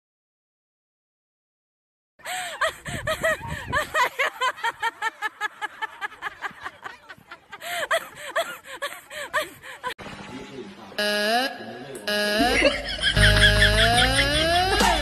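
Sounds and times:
high-pitched giggling: 0:02.4 - 0:05.2, 0:12.2 - 0:15.0.

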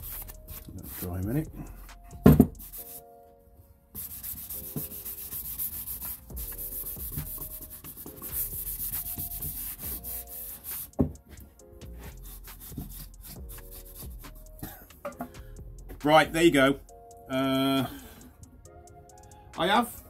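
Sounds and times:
cloth wiping wood: 0:00.0 - 0:01.4, 0:02.6 - 0:03.0, 0:04.0 - 0:11.1, 0:12.0 - 0:14.0
soft background music: 0:00.0 - 0:20.0.

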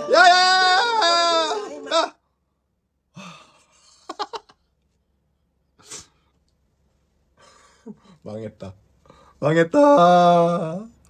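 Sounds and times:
sharp gasp: 0:05.8 - 0:06.3.

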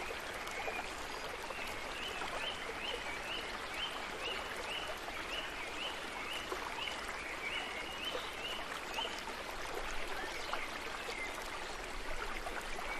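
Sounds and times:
stream water rushing: 0:00.0 - 0:12.9.

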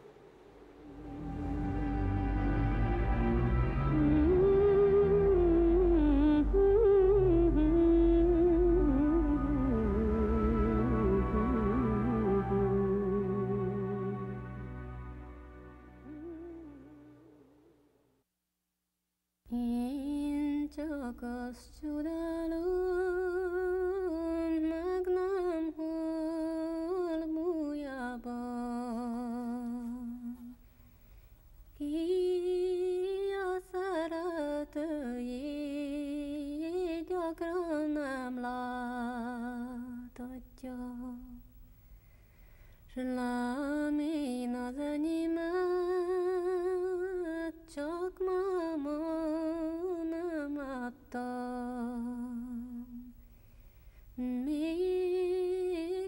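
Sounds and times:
woman singing folk melody: 0:19.5 - 0:30.6, 0:31.8 - 0:41.5, 0:42.9 - 0:53.2, 0:54.2 - 0:56.0.

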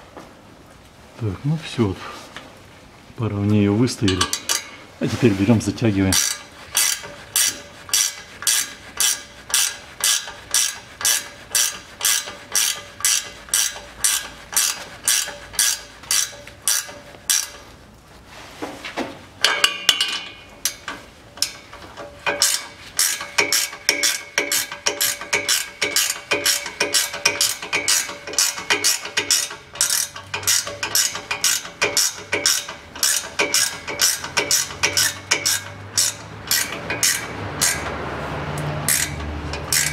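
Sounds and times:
ratchet wrench clicking: 0:06.2 - 0:17.6, 0:20.6 - 0:37.9, 0:38.8 - 0:39.9.

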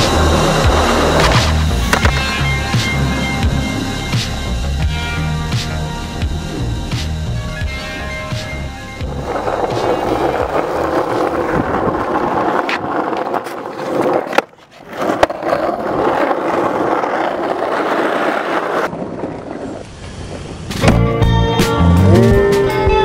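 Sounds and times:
skateboard landing clack: 0:00.0 - 0:03.0
skateboard tail popping crack: 0:00.0 - 0:03.0
skateboard wheels rolling on asphalt: 0:00.0 - 0:22.7.

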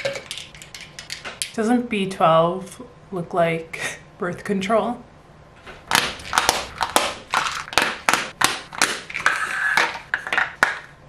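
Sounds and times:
plastic pill cases clicking: 0:06.2 - 0:10.9.

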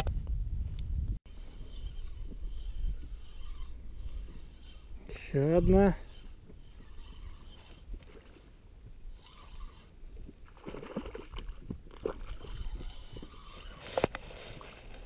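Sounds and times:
wind and water rumble: 0:00.0 - 0:15.0
fish thrashing and splashing: 0:10.4 - 0:14.6.

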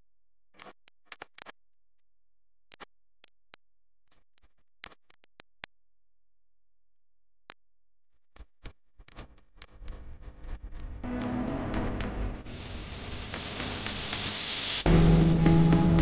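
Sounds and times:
sparse plucked background music: 0:11.0 - 0:12.5, 0:14.9 - 0:16.0.

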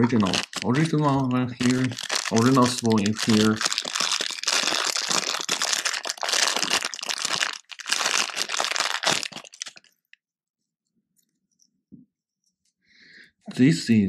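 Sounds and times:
plastic bag crinkling: 0:00.0 - 0:10.0.

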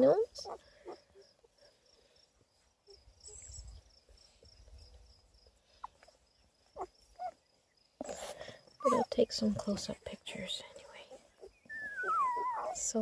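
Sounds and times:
puppies squeaking: 0:00.3 - 0:01.6, 0:06.7 - 0:07.4, 0:08.8 - 0:09.3, 0:11.1 - 0:13.0.

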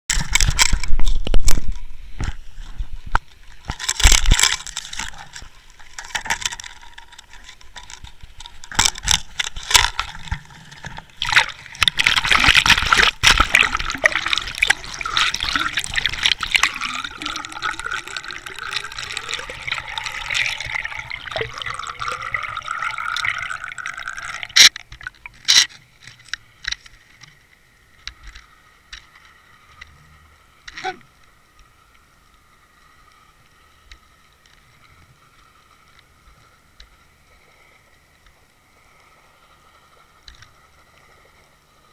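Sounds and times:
water splashing and gurgling: 0:02.9 - 0:25.7.

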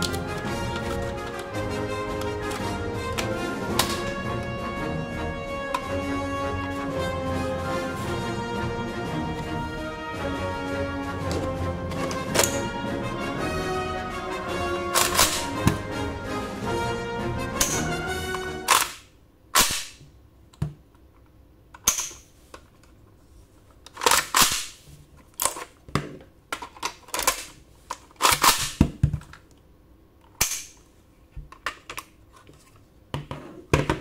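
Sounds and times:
plastic clacks and snaps: 0:23.9 - 0:29.6, 0:31.4 - 0:34.0.

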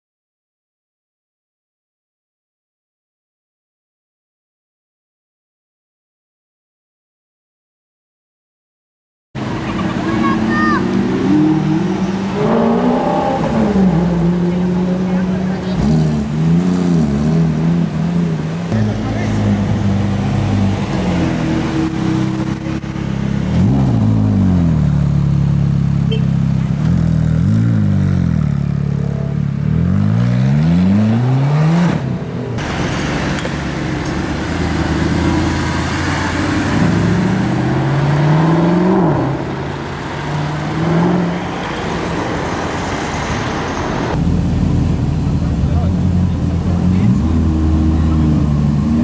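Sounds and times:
sports car accelerating: 0:09.4 - 0:42.2, 0:42.8 - 0:49.0
sports car engine revving: 0:09.5 - 0:41.6, 0:44.2 - 0:49.0.

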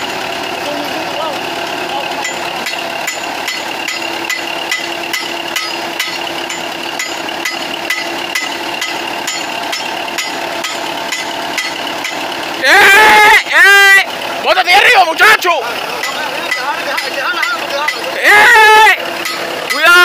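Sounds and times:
diesel tractor engine idling: 0:00.0 - 0:20.0
sharp metallic knock: 0:02.2 - 0:12.2.

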